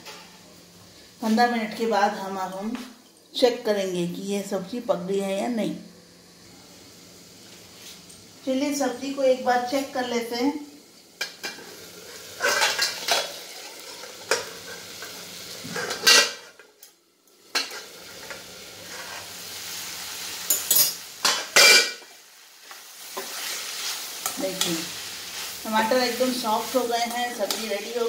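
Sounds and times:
low sizzle of simmering curry: 10.6s - 21.3s
pan lid and utensils clattering: 12.4s - 15.1s, 15.7s - 16.7s, 20.5s - 22.1s.

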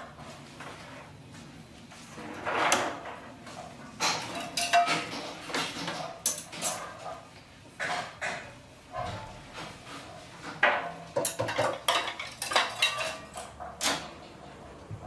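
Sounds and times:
metal pots and ladle clinking: 4.0s - 7.2s, 10.4s - 14.1s.

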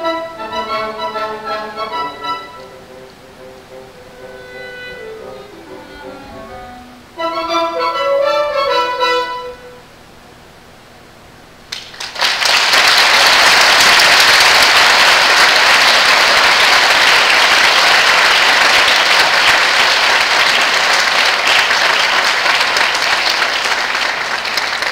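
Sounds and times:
audience applauding: 11.7s - 24.9s.

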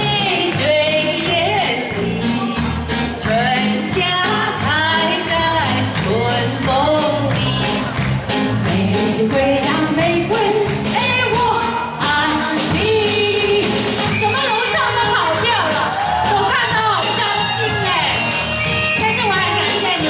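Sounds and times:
woman singing into microphone: 0.0s - 2.5s, 3.2s - 7.8s, 8.6s - 15.5s, 19.0s - 20.0s
band accompaniment with drum beat: 0.0s - 20.0s.

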